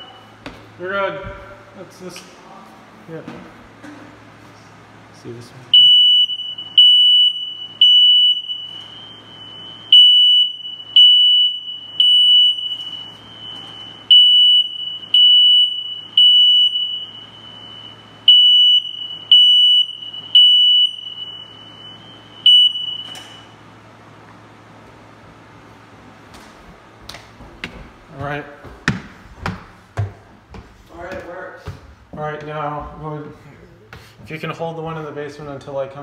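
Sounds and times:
smoke alarm beeping: 0.0s - 0.5s, 5.7s - 23.7s.

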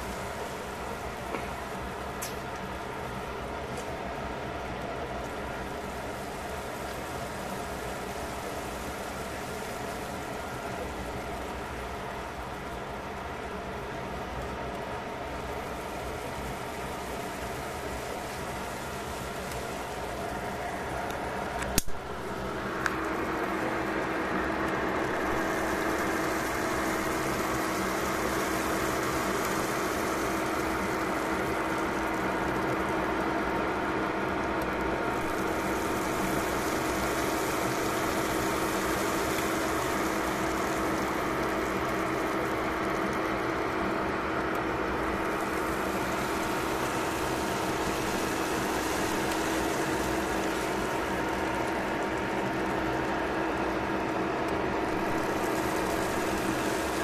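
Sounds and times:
broth simmering in a pot: 0.0s - 57.0s
steady machine hum: 0.0s - 57.0s
sharp click: 21.6s - 22.0s.

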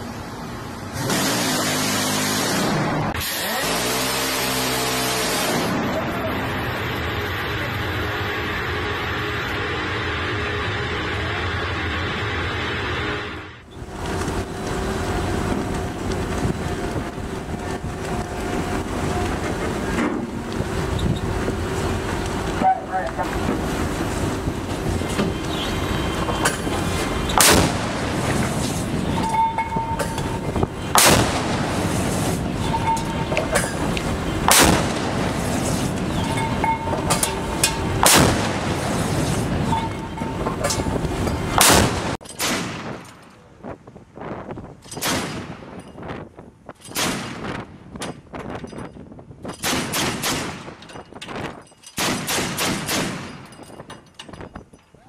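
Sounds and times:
wind and sea noise: 13.6s - 55.0s
heavy deck gun firing: 34.5s - 35.2s, 38.0s - 38.6s, 52.0s - 53.4s.

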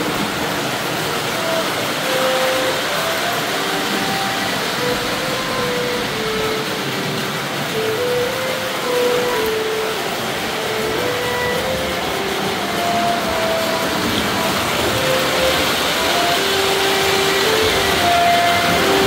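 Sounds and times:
model train running on track: 0.0s - 19.0s
simple tune of held notes: 0.0s - 19.0s.

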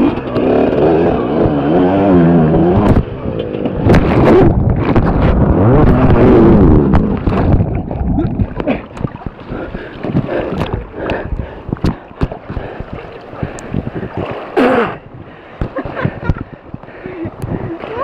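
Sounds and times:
dirt bike engine revving: 0.0s - 7.7s
river water splashing: 3.8s - 16.6s.

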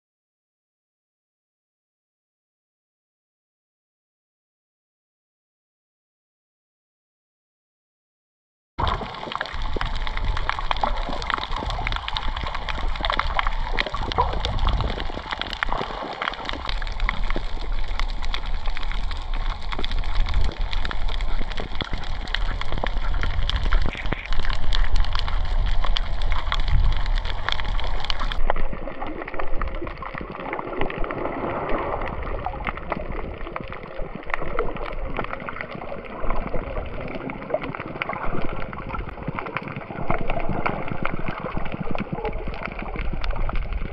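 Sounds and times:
water sloshing and splashing: 8.8s - 43.9s.

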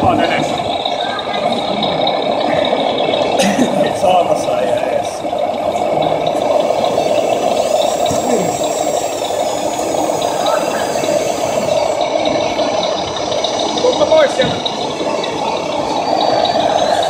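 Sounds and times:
crowd chatter: 0.0s - 17.0s
faint high whine: 5.9s - 12.2s.

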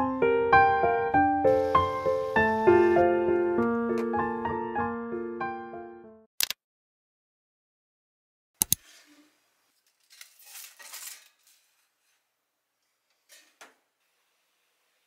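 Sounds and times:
sharp clicks: 6.4s - 6.6s
toast scraping off oven rack: 8.8s - 12.2s.

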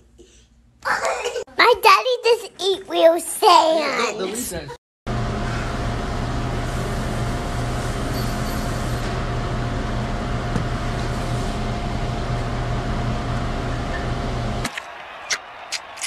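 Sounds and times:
thin steady whine: 5.1s - 14.6s
kitchen equipment hum: 5.1s - 14.7s.

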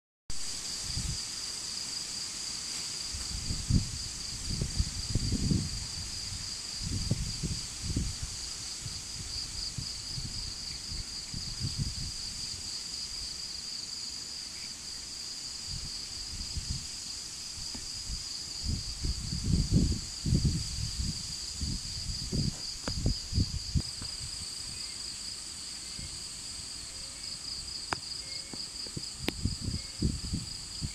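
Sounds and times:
insects trilling: 0.5s - 30.9s
gusty wind buffeting microphone: 0.8s - 1.2s, 3.0s - 13.3s, 15.6s - 24.8s, 28.8s - 30.9s.

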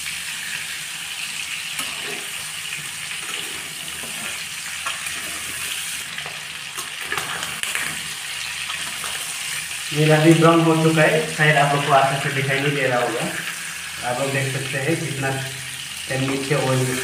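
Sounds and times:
pork sizzling in a pan: 0.0s - 17.0s
metal spatula scraping: 1.8s - 6.0s.

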